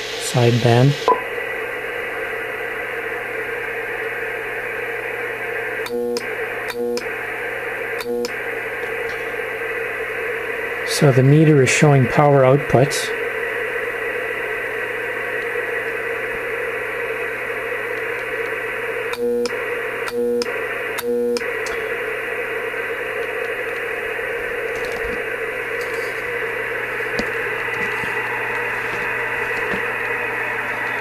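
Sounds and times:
hum: 0.0 - 31.0
radio speaker hiss: 0.0 - 31.0
whine: 0.0 - 31.0
short beeps: 1.1 - 1.3.

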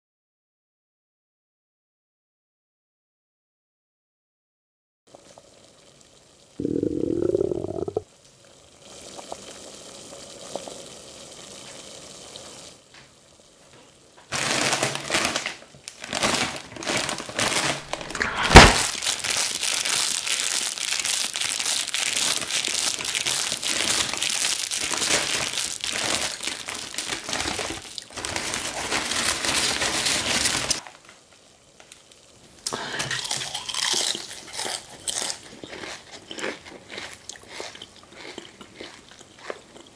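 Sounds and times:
potato chip bag crinkling: 14.3 - 31.4
bag popping open: 14.4 - 20.8.

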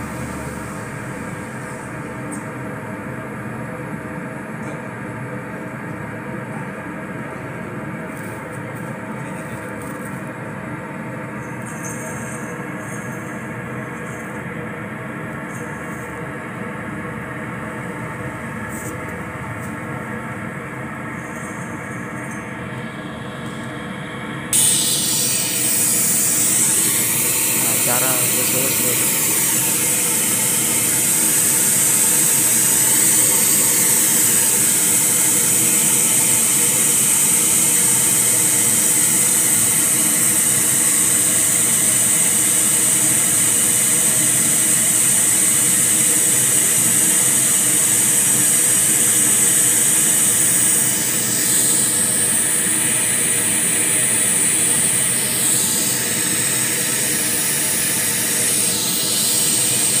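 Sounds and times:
hissing test noise from loudspeaker: 24.6 - 60.0.

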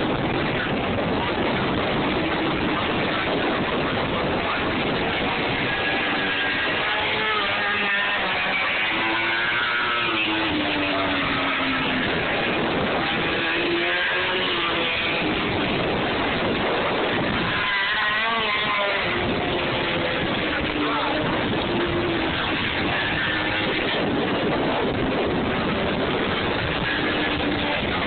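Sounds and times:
racing motorcycle engines: 0.0 - 28.0.

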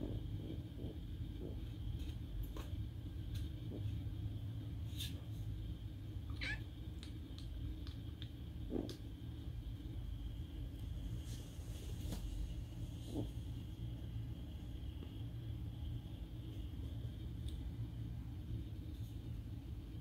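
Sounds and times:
steady low hum: 0.0 - 20.0
kitten mewing: 6.3 - 6.7.

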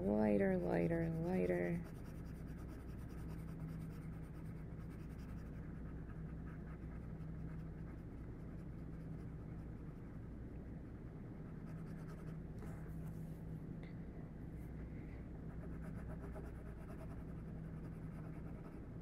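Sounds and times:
low hum: 0.0 - 19.0
pencil shading on paper: 0.2 - 10.1.

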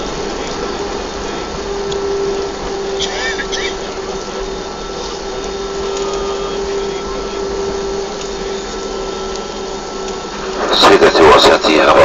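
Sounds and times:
airplane cabin rushing hum: 0.0 - 12.0
mid-pitched whine: 0.0 - 12.0.

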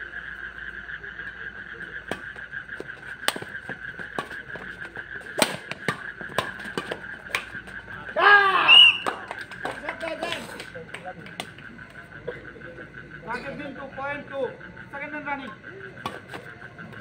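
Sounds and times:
steady high-pitched drone: 0.0 - 17.0
rackets striking shuttlecock: 2.0 - 8.0, 8.8 - 12.0, 15.5 - 17.0.

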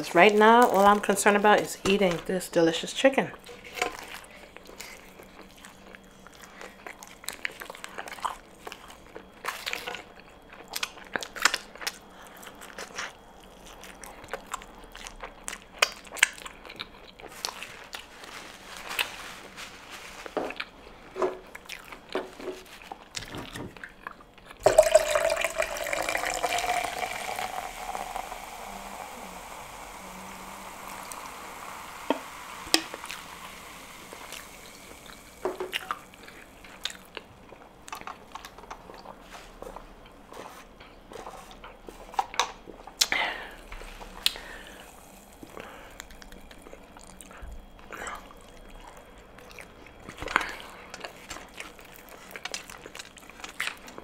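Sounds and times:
person chewing: 4.0 - 18.1, 31.4 - 43.2
liquid pouring: 24.6 - 36.5.

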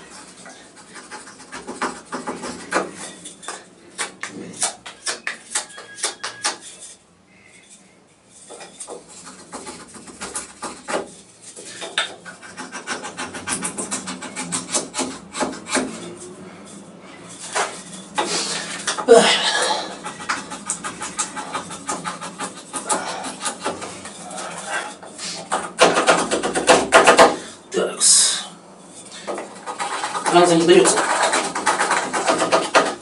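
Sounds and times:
knife shaving wood: 19.6 - 26.4, 29.2 - 33.0.

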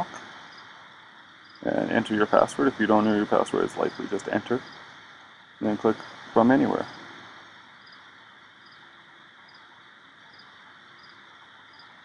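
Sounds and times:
faint background hiss: 0.0 - 12.0.

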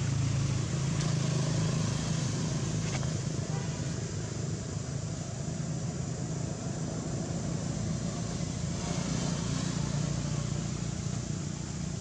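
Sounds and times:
road traffic hum: 0.0 - 12.0
vehicle passing: 7.5 - 12.0.

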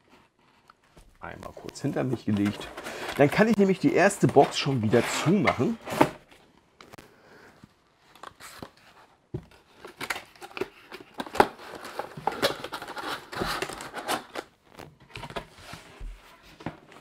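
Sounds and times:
cardboard scraping and rustling: 0.0 - 6.4.

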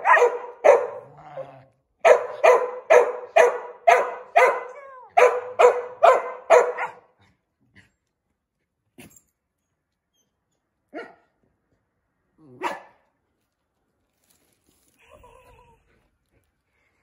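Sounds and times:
dog barking: 0.0 - 7.1, 11.0 - 11.3, 12.6 - 13.0.

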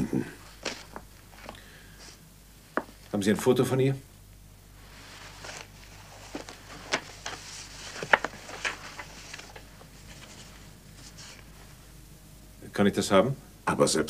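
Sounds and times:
paper rustling: 0.5 - 2.2, 4.8 - 11.8.

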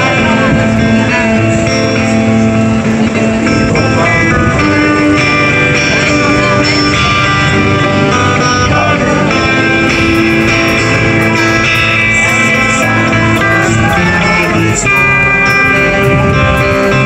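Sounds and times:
guitar music: 0.0 - 17.0
light ticking beat: 9.4 - 17.0.

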